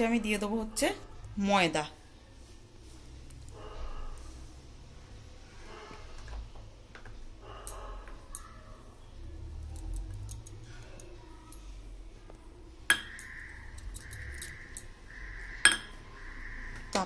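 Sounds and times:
utensil clinking metal pot: 15.6s - 16.0s.

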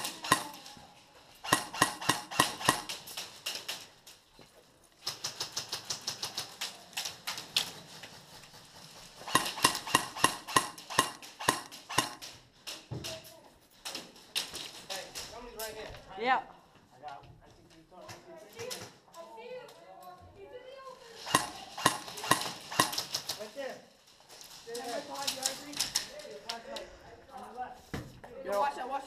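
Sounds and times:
airsoft guns firing rapidly: 0.0s - 0.8s, 1.4s - 3.2s, 8.6s - 12.4s, 21.2s - 23.5s.

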